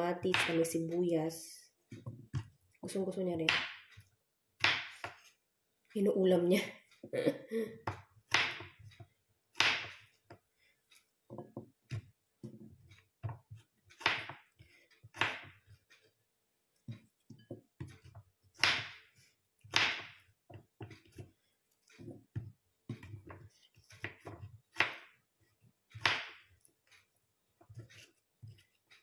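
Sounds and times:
knife knocking on wooden board: 0:11.3 - 0:14.4
knife slicing cucumber: 0:12.9 - 0:14.4, 0:15.1 - 0:16.0, 0:17.8 - 0:25.2, 0:25.8 - 0:27.1, 0:27.7 - 0:29.0.

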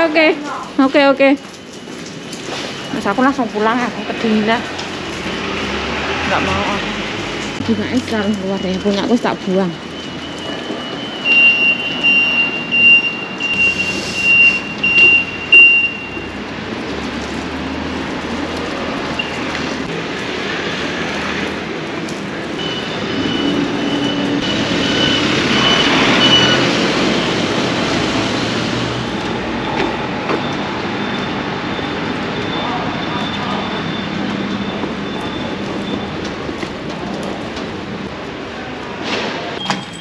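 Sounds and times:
street traffic: 0:00.0 - 0:40.0
vehicle passing: 0:03.8 - 0:09.3.

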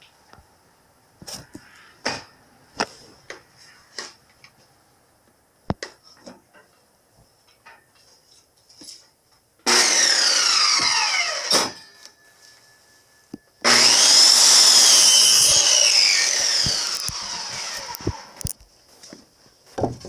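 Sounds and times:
circular saw cutting wood: 0:09.6 - 0:12.1, 0:13.6 - 0:18.4.

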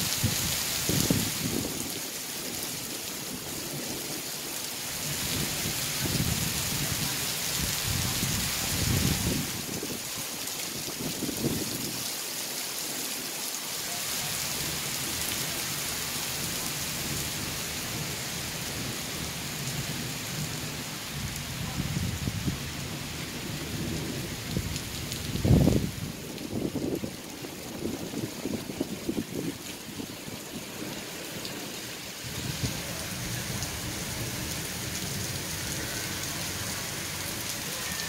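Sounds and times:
heavy rain hissing: 0:00.0 - 0:38.0
thunder rumbling: 0:18.7 - 0:27.1.

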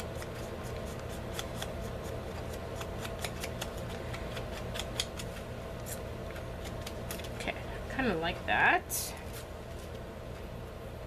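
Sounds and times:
paper card clicks and scratches: 0:00.0 - 0:07.4.

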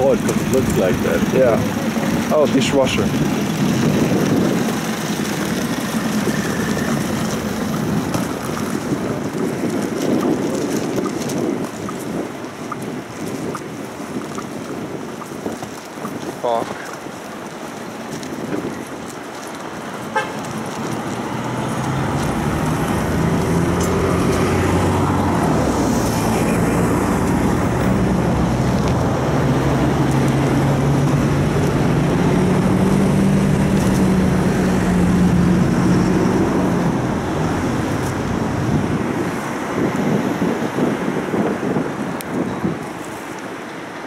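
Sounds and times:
large engine humming: 0:00.0 - 0:09.4, 0:20.1 - 0:39.7.

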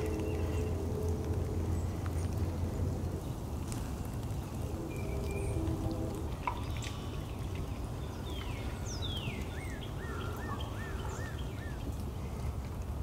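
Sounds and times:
low background rumble: 0:00.0 - 0:13.0
small bird singing: 0:04.3 - 0:05.8, 0:06.6 - 0:12.5.

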